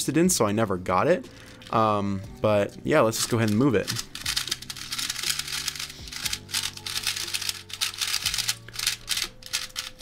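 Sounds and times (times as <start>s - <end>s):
background music: 0.0s - 10.0s
plastic puzzle cube clicking: 3.9s - 10.0s.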